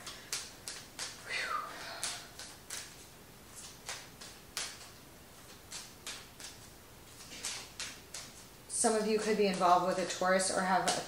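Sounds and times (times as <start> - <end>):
cards clicking and snapping: 0.0 - 1.2, 2.0 - 8.5.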